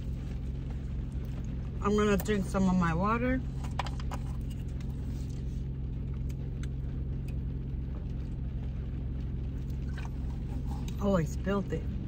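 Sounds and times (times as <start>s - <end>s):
car idling: 0.0s - 12.0s.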